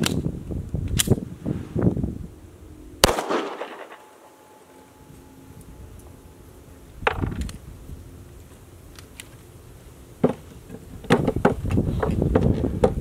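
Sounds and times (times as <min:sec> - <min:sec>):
wind rumble on microphone: 0:00.0 - 0:03.1, 0:05.0 - 0:08.5, 0:10.5 - 0:13.0
pistol metallic clicks: 0:00.9 - 0:01.2.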